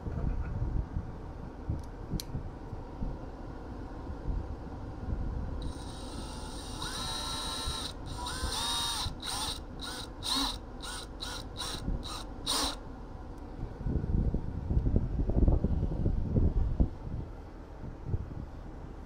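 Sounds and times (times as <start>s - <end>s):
cordless drill running: 5.6s - 12.8s.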